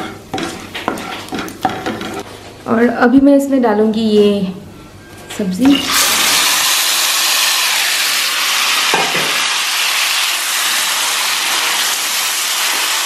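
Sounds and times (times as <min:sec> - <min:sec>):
oil sizzling in a wok: 0:05.7 - 0:13.0.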